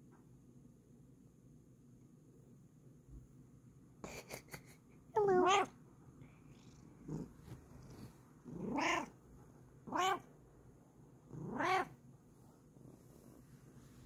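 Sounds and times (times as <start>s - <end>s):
cat meowing: 8.5s - 9.2s, 9.9s - 10.3s, 11.4s - 12.0s.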